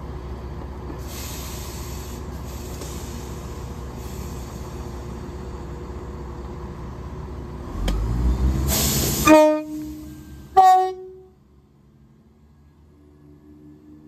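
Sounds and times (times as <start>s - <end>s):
diesel train engine rumble: 0.0s - 14.0s
train horn blasts: 9.2s - 11.4s.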